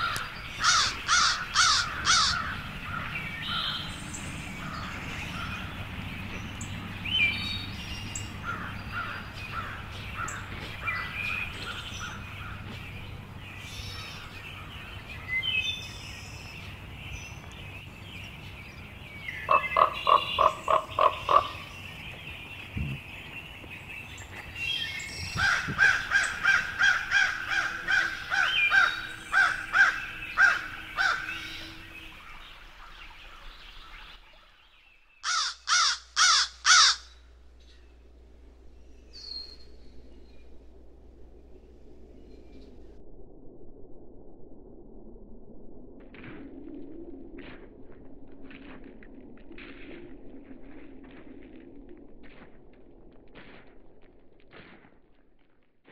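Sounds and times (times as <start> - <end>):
crows cawing: 0.0 - 3.8, 8.4 - 12.7, 19.5 - 21.7, 25.4 - 32.3, 35.2 - 37.3
bird chirps: 0.0 - 42.9
low steady hum: 0.0 - 49.4.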